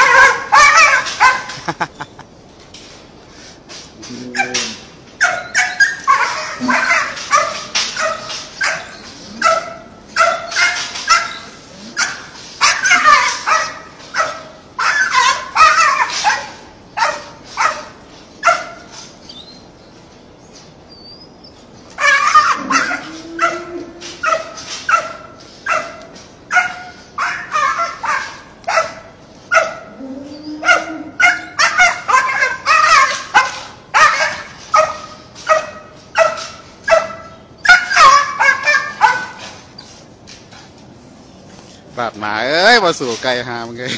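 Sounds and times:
small dog barking: 0.0 - 1.6, 12.0 - 18.8, 22.0 - 29.9, 30.6 - 39.4.

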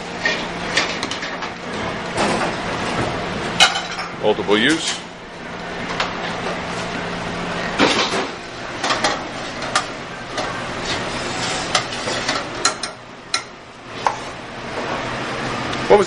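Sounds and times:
steady low hum: 0.0 - 16.0
pans and utensils clanking: 7.8 - 14.2.

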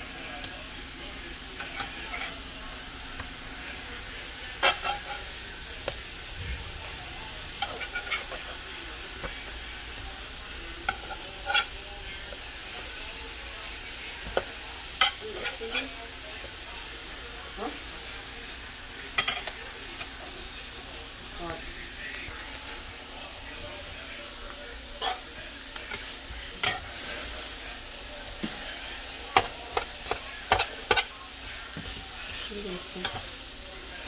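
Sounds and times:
food sizzling on griddle: 0.0 - 34.0
spatula clicking and scraping: 1.6 - 2.4, 4.6 - 5.3, 7.6 - 8.5, 10.8 - 12.9, 28.3 - 33.4.

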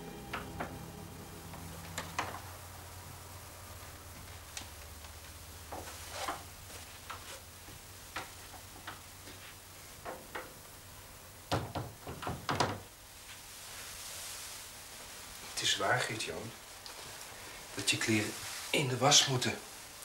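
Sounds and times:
wooden door opening and shutting: 11.5 - 12.9.

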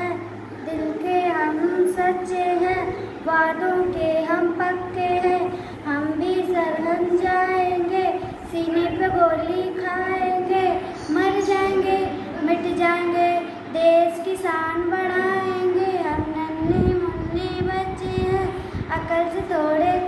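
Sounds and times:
girl singing a chant: 0.0 - 20.0.

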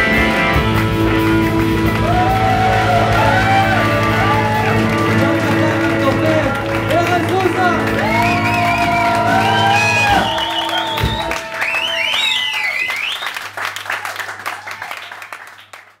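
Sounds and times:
live band playing chord: 0.0 - 11.8
audience applauding and cheering: 0.0 - 16.0
high whistles: 8.1 - 13.5.

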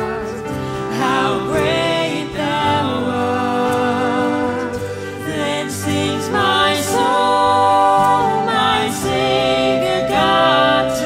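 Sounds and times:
violin: 0.0 - 11.0
voices singing a hymn in harmony: 0.0 - 11.0
whistle: 4.7 - 11.0.

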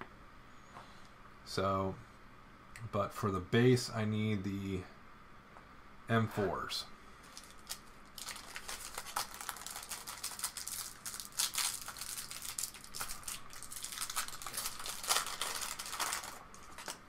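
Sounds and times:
plastic bag crinkling: 7.2 - 17.0.

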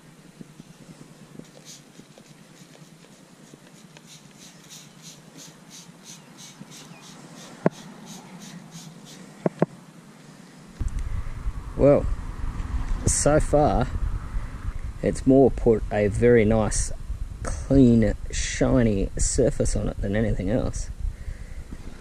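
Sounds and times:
spray bottle misting hisses: 1.3 - 9.3.

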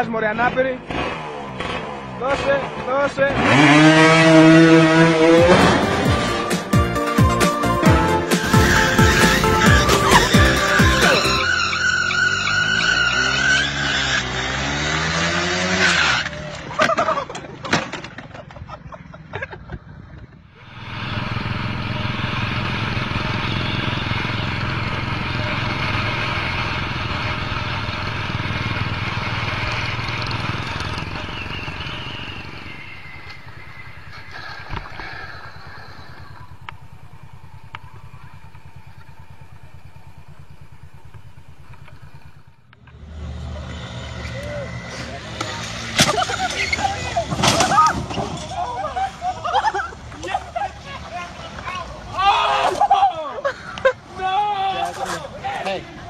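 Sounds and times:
motorcycle engine running: 0.0 - 12.6, 19.9 - 43.7
scooter engine revving: 0.0 - 17.1, 20.6 - 51.9.

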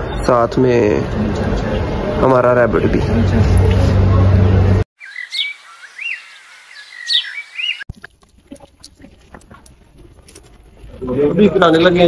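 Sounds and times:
bird chirping and whistling: 5.0 - 7.8.

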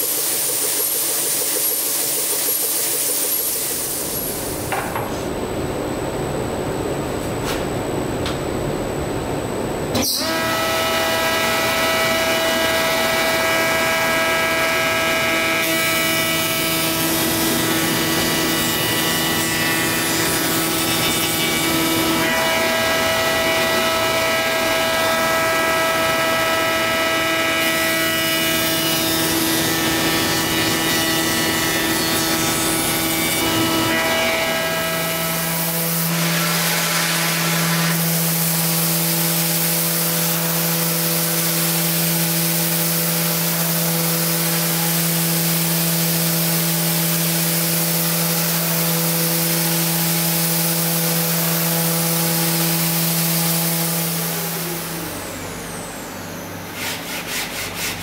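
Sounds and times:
spindle moulder cutting wood: 56.8 - 58.0.

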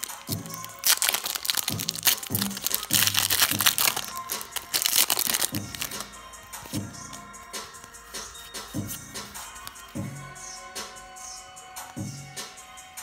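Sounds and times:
foil wrapper crinkling and tearing: 0.0 - 6.8
background music with steady beat: 0.0 - 13.0.

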